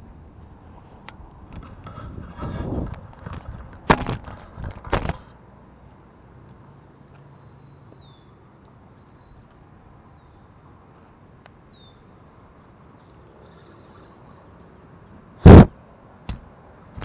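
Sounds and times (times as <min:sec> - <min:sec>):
bird high downward calls: 0:07.6 - 0:08.4, 0:13.0 - 0:14.6.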